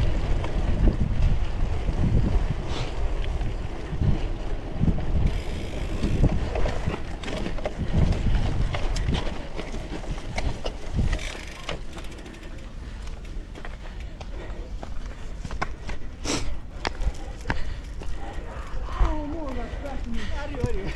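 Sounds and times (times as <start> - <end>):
wind buffeting microphone: 0.0 - 11.6
bike rattling over dirt trail: 0.0 - 20.9
sharp clicks from bike: 0.0 - 20.9.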